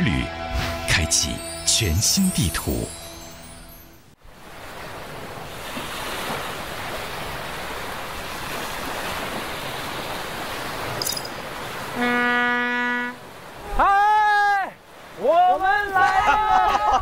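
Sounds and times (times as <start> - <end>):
sea waves breaking: 4.2 - 17.0
loud horn tone: 11.9 - 13.3.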